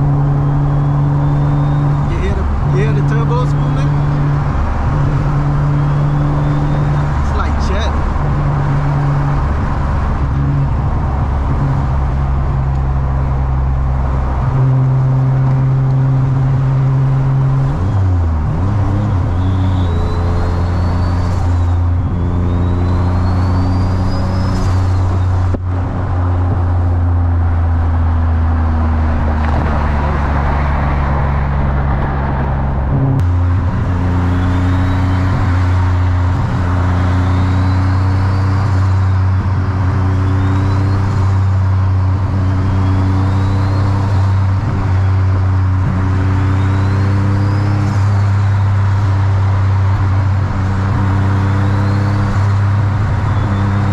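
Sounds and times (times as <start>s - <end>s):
turbo whistle: 0.0s - 8.0s, 18.6s - 25.5s, 34.0s - 41.4s, 42.2s - 44.6s, 46.1s - 48.3s
car engine drone: 0.0s - 53.9s.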